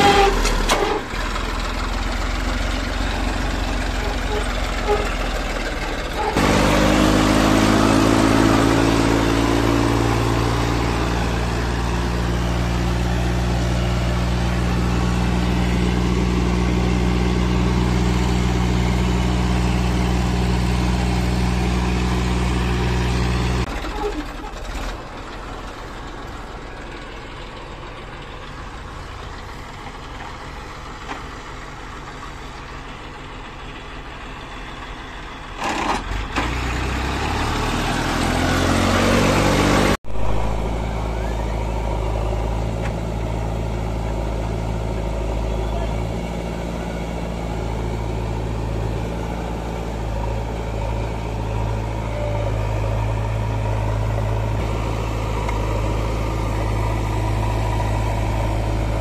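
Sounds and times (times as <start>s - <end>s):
rough engine rumble: 0.0s - 59.0s
tractor diesel engine running: 0.0s - 59.0s.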